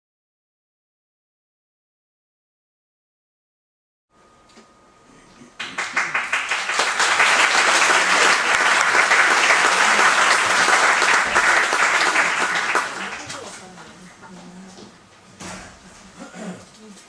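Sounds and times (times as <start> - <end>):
audience applauding: 5.6 - 13.6.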